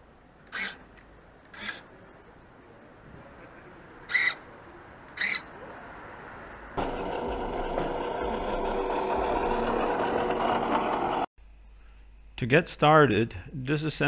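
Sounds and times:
servo whirring: 0.4 - 0.8, 1.4 - 1.9, 6.8 - 11.3
steady buzzing whir: 6.8 - 12.3.

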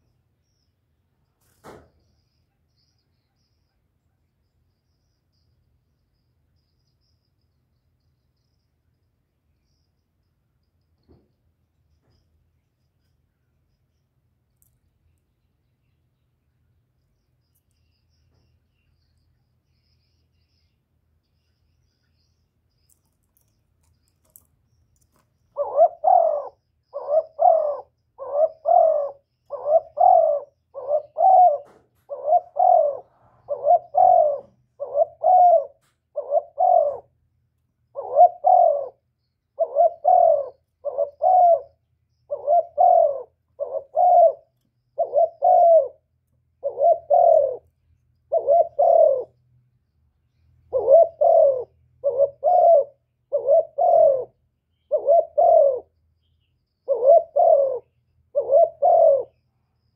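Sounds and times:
dove cooing: 25.5 - 37.2, 37.9 - 47.7, 48.3 - 49.4, 50.7 - 56.0, 56.8 - 59.4.

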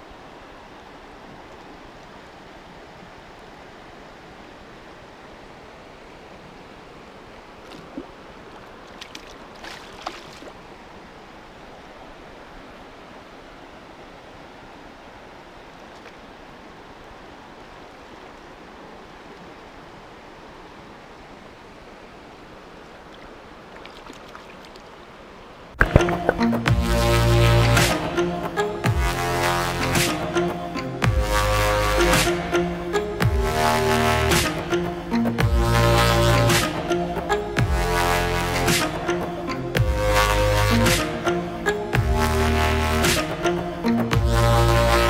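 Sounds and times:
mountain stream rushing: 0.0 - 45.0
clicks and knocks: 25.8 - 26.4.

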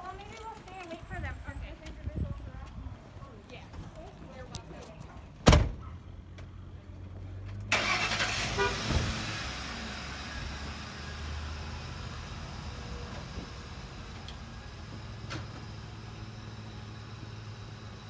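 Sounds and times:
truck door slamming: 5.4 - 5.8
truck engine starting and idling: 5.4 - 18.0.

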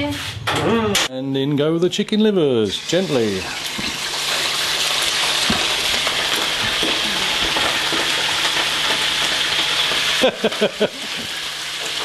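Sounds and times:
chicken livers sizzling in oil: 2.7 - 12.0.

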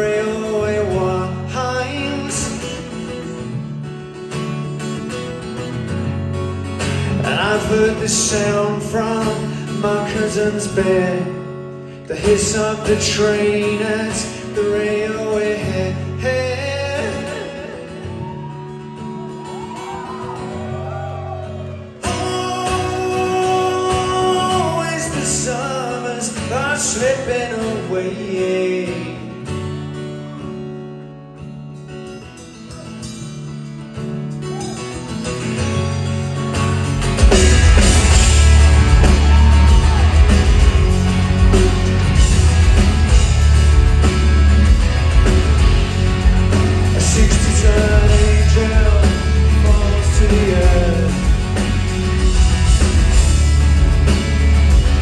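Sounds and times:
acoustic guitar: 0.0 - 55.0
rock band playing live: 0.0 - 55.0
low bass notes: 35.9 - 55.0.

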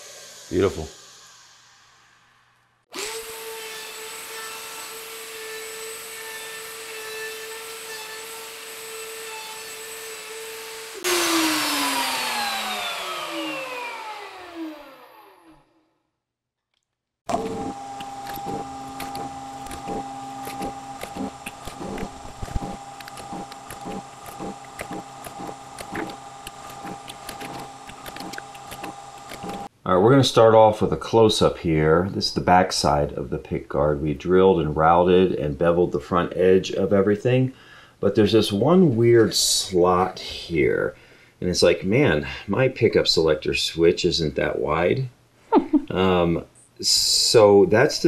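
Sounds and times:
router running and spinning down: 2.9 - 15.7, 17.3 - 29.7
drill press boring with clicking: 17.3 - 29.7.

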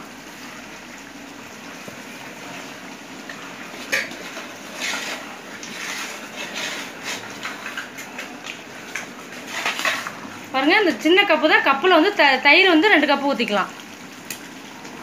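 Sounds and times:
metal spatula scraping a pot: 3.9 - 7.9, 9.4 - 10.2.

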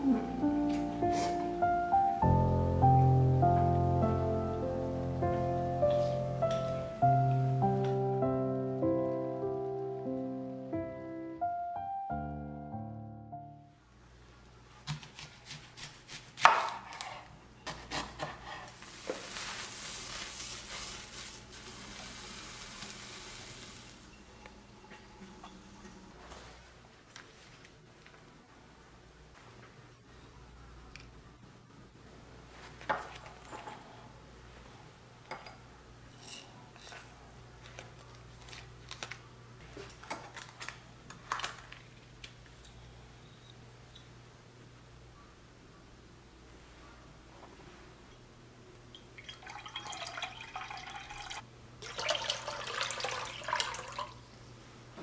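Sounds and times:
knife chopping on wooden board: 14.8 - 17.1
onion searing in pan hiss: 18.9 - 24.1.

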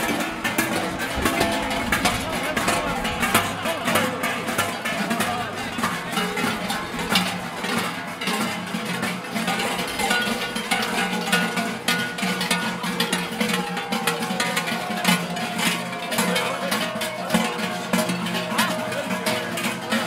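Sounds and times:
large bells clanging: 0.0 - 20.0.

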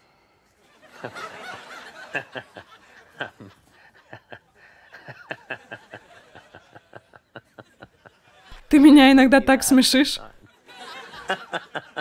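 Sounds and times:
man chuckling: 3.2 - 5.8.

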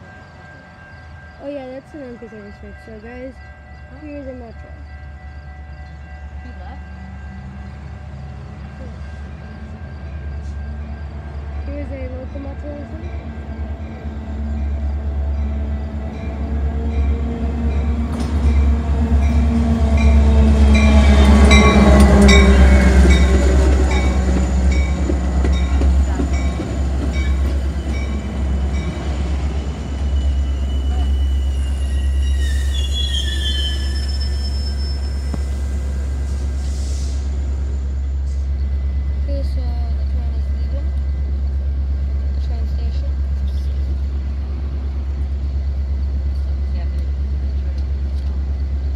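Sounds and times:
train passing: 0.0 - 48.9
brakes squealing: 20.6 - 39.5.

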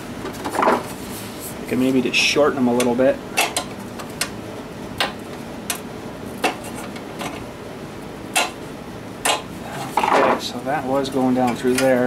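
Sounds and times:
light clicks and taps on engine: 2.8 - 4.4, 11.4 - 12.0.

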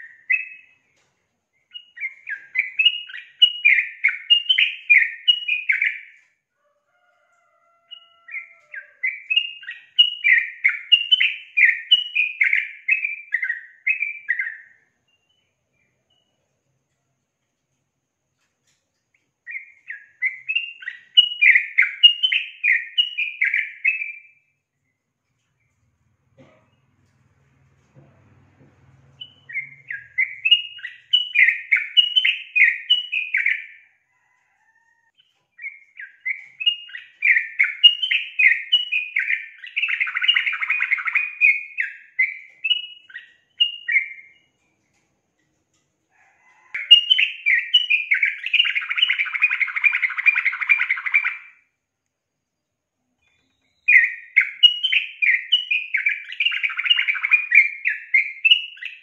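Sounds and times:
bird chattering song: 0.0 - 0.8, 1.6 - 6.2, 7.9 - 16.4, 19.5 - 24.3, 29.1 - 33.8, 35.2 - 44.5, 46.6 - 51.6, 53.2 - 59.0.

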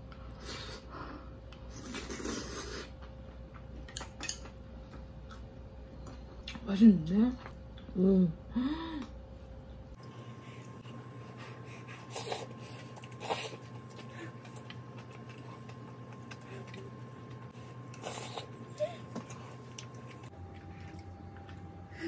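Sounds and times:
steady hum: 0.0 - 22.0
noodles slurped and chewed: 1.7 - 3.0, 12.0 - 21.6.

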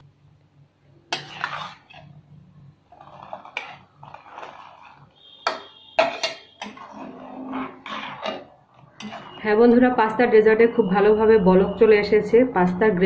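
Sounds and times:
metal spatula scraping a pot: 1.1 - 10.2.

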